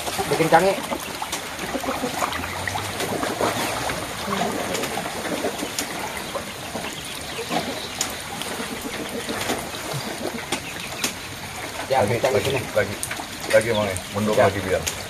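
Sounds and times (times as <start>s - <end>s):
small splashes and drips: 0.0s - 15.0s
water sloshing and trickling: 0.0s - 15.0s.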